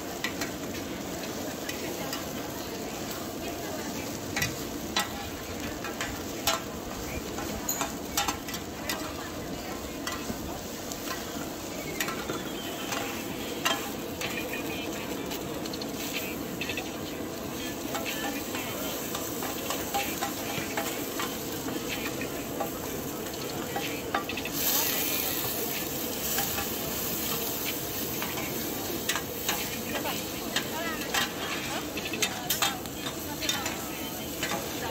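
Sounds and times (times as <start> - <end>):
egg sizzling in hot oil: 0.0 - 34.9
metal spatulas scraping a pan: 23.4 - 34.9.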